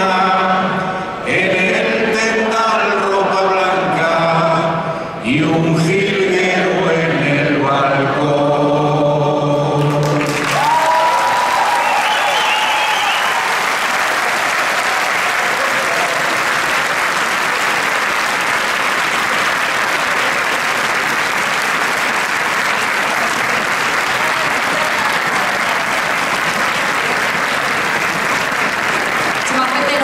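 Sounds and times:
audience applauding: 9.8 - 30.0.

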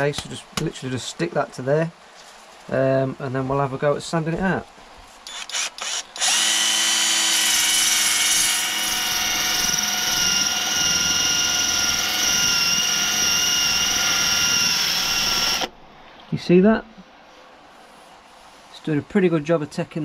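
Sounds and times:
drill motor whine: 5.3 - 15.7.

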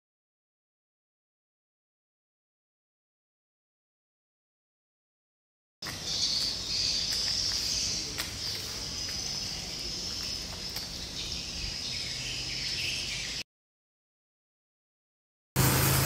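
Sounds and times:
insects chirping: 5.8 - 13.4.

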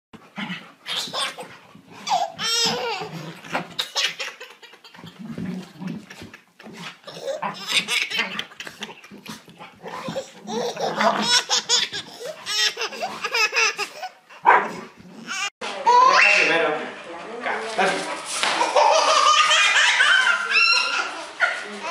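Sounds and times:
baby laughing hysterically: 0.9 - 14.2, 18.6 - 21.2
baby breathing: 11.9 - 14.2.

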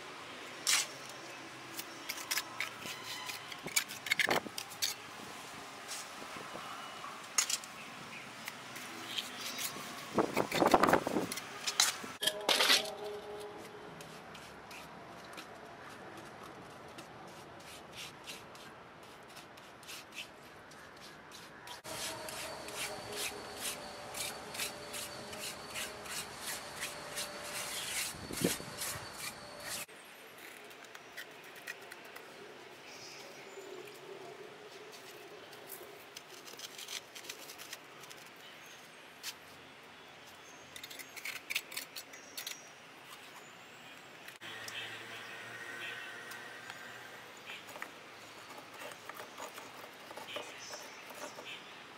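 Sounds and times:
trowel scraping wet mortar: 17.3 - 29.9.

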